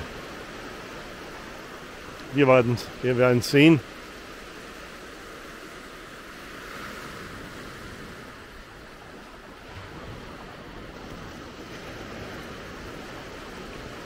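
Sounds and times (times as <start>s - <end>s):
ocean surf washing onto beach: 0.0s - 14.0s.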